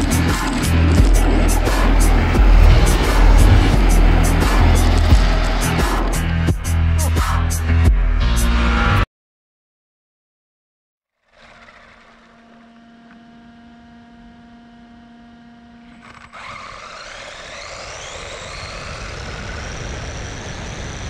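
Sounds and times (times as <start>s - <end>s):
electric motor whine: 0.0s - 6.5s, 11.3s - 21.0s
low rumble: 0.0s - 8.2s.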